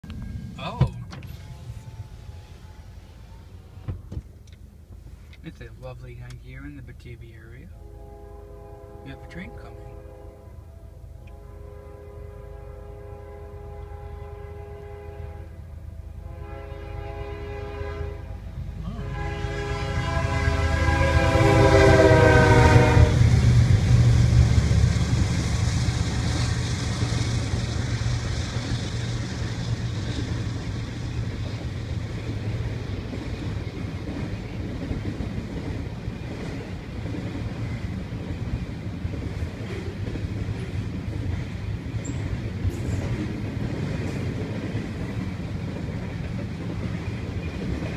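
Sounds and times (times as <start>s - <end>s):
freight train rumbling past: 0.0s - 47.9s
locomotive horn blasts: 7.7s - 23.3s.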